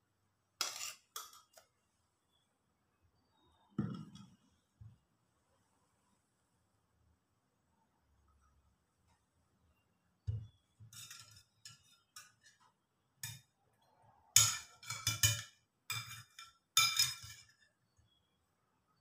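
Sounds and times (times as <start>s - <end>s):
bowl set down knock: 3.8s - 4.3s
spoon clinking against ceramic bowl: 14.4s - 17.6s.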